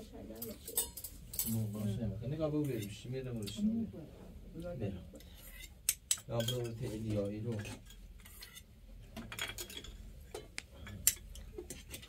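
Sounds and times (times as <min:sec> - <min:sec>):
metal spoons clinking on pots: 0:00.3 - 0:01.8, 0:05.2 - 0:12.0.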